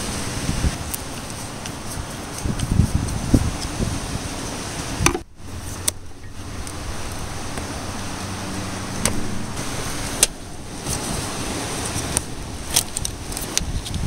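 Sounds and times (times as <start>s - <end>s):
low hum: 5.0s - 12.8s.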